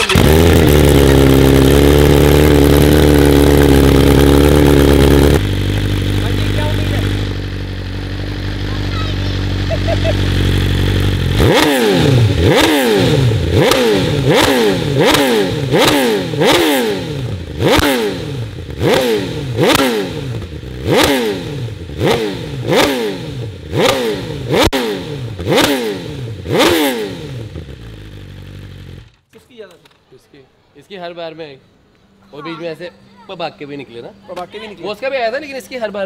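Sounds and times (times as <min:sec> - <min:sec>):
sharp engine crack: 0:00.0 - 0:07.6
motorcycle engine revving: 0:00.0 - 0:29.3.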